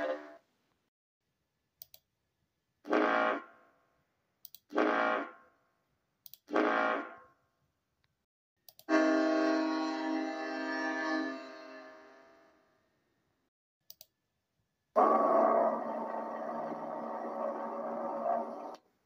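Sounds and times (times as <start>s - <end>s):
ship's horn blasts: 8.9s - 12.8s
faint clicks: 13.9s - 14.1s.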